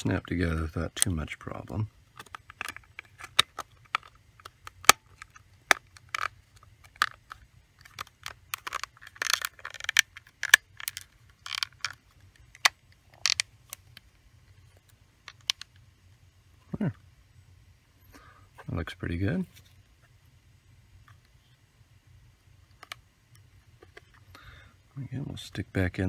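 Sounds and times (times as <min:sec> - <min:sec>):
plastic scrapes and creaks: 0:01.0 - 0:15.7.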